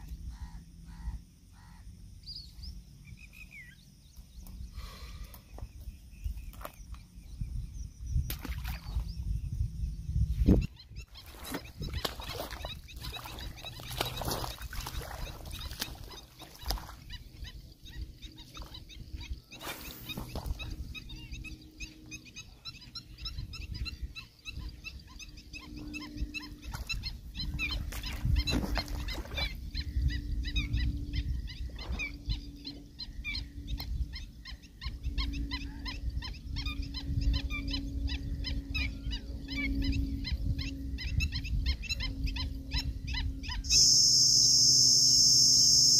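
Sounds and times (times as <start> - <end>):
low steady hum: 0.0 - 45.9
rapid wildlife chirps: 0.0 - 45.9
wind rumbling on microphone: 0.0 - 45.9.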